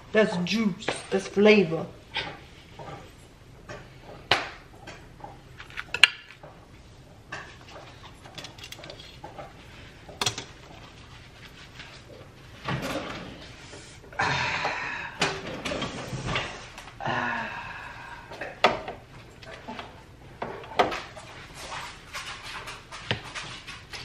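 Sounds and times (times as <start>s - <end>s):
tongs clinking on pan and plates: 10.2s - 10.6s
kitchen drawer sliding open: 12.6s - 13.6s.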